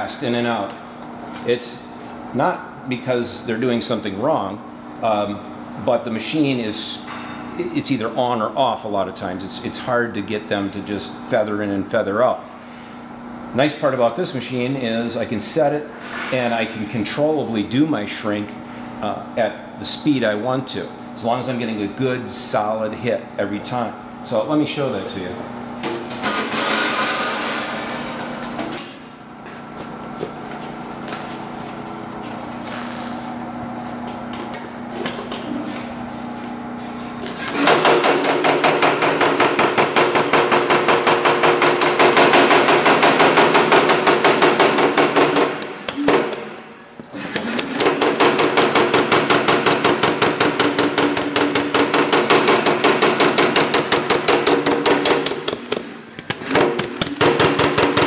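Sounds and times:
steady machine hum: 0.0 - 58.0
power hammer blows on sheet metal: 37.6 - 46.5, 47.4 - 58.0.

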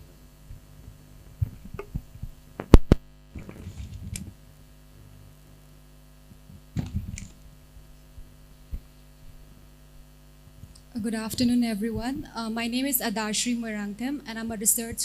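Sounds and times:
electrical hum: 0.0 - 15.0
microphone handling knocks: 0.5 - 4.4, 6.3 - 7.4.

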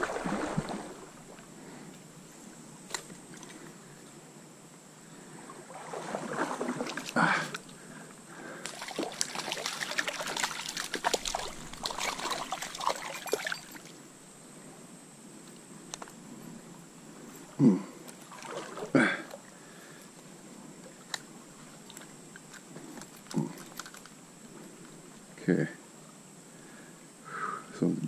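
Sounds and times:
water splashing in stream: 0.0 - 1.4, 5.6 - 7.7, 8.6 - 14.0, 18.1 - 19.5.

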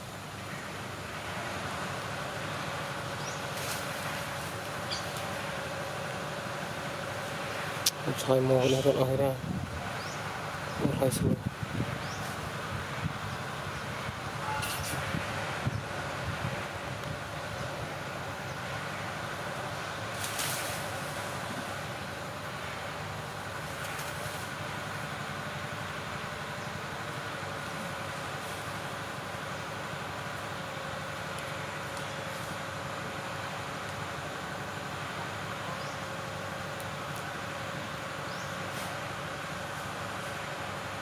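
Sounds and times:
constant hum: 0.0 - 41.0
outdoor drone and hiss: 0.0 - 41.0
brief rustle: 20.2 - 20.9.

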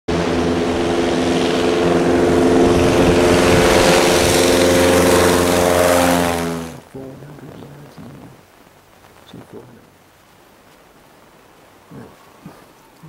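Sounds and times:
propeller plane engine at full throttle: 0.1 - 6.8.

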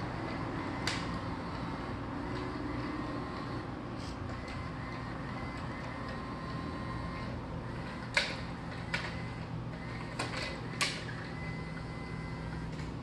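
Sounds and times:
room hum: 0.0 - 13.0
electronic toy whirring: 4.3 - 12.8.

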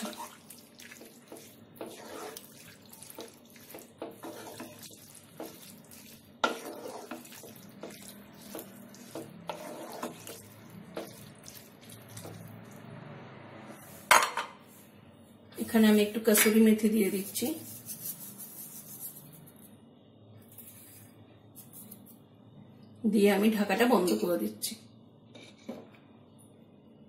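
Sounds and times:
spatula stirring food in a pan: 0.0 - 12.9.

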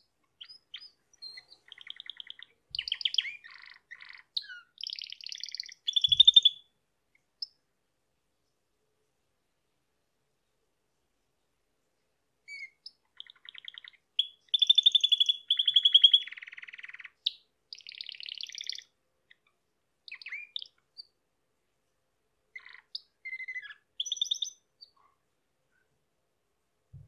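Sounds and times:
canary singing trills: 0.0 - 6.7, 12.4 - 21.2, 22.5 - 25.2.

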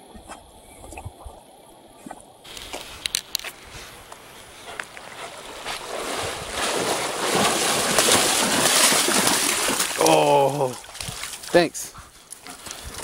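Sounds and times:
sharp clicks: 2.5 - 4.2
dog splashing through water: 2.5 - 11.6.

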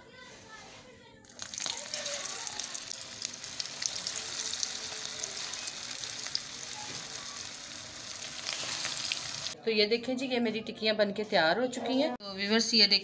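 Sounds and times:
patties sizzling in hot oil: 1.3 - 9.6.

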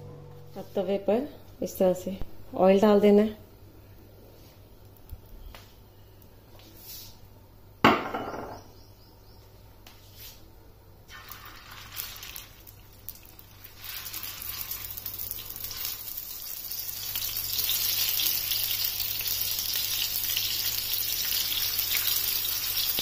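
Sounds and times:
skewers sizzling in oil: 11.1 - 23.0.

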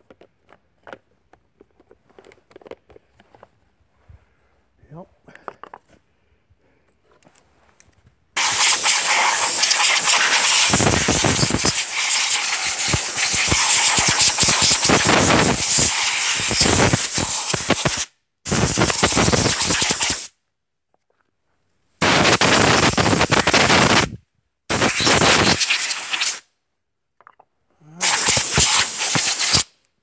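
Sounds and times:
compressed air blow gun hissing: 8.4 - 20.3, 22.0 - 24.1, 24.7 - 26.4, 28.0 - 29.7.

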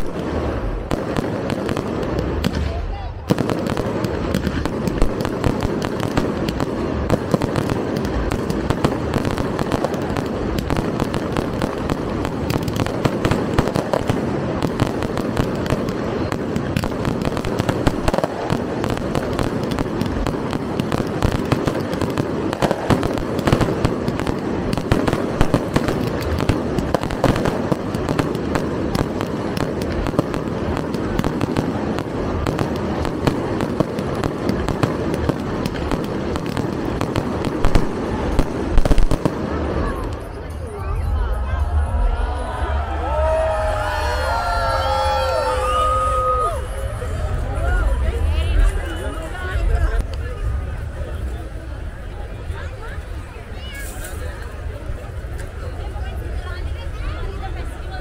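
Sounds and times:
firework shells launching and bursting: 0.0 - 40.5
fireworks bangs and crackles: 0.0 - 58.0.

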